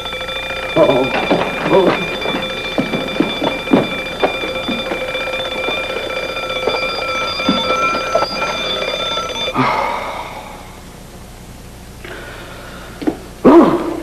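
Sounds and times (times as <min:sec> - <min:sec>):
alarm clock bell ringing: 0:00.0 - 0:09.7.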